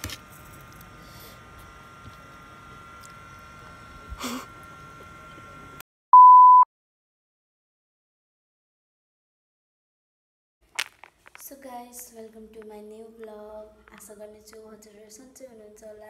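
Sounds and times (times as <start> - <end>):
pure test tone beep: 6.1 - 6.7.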